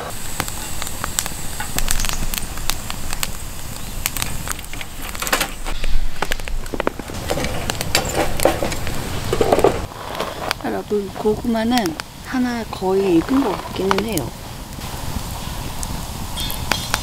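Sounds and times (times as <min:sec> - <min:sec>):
wood fire crackling: 0:00.0 - 0:17.0.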